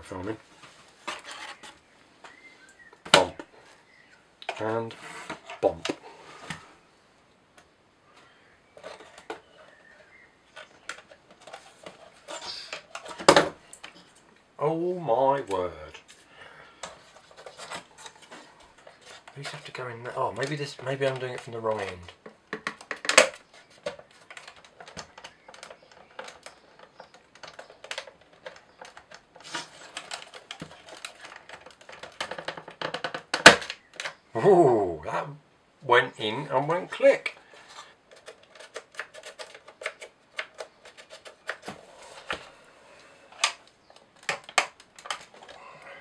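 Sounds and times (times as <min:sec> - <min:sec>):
plywood parts clicking and tapping: 0:08.8 - 0:14.4, 0:16.8 - 0:34.2, 0:36.9 - 0:42.6, 0:43.3 - 0:46.0.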